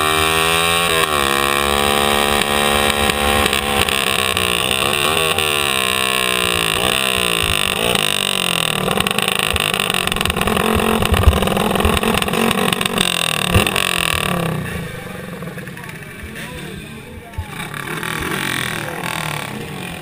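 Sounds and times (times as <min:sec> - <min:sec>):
kart engine revving: 0:00.0 - 0:20.0
sharp knocks: 0:09.5 - 0:14.4.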